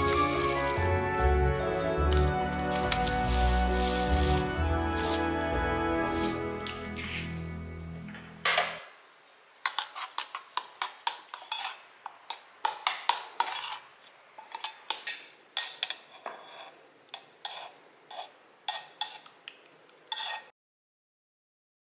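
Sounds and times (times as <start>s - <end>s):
spoon scraping a metal saucepan: 9.6s - 19.3s, 20.1s - 20.5s.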